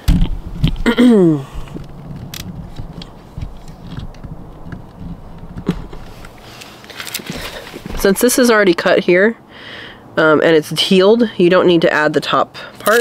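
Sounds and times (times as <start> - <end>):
person murmuring hmm: 0.8 - 1.8.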